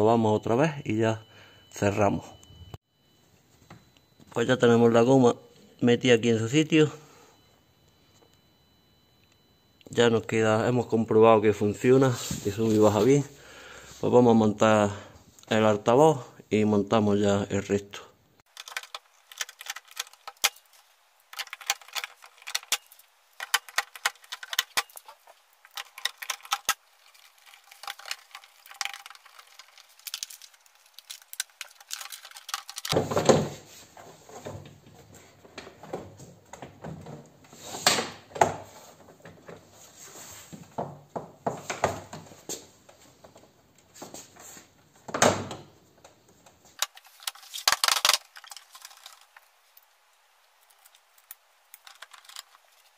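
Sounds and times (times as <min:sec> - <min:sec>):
parts and hand tools rattling: 0:18.5 - 0:33.0, 0:46.8 - 0:49.6, 0:50.6 - 0:52.9.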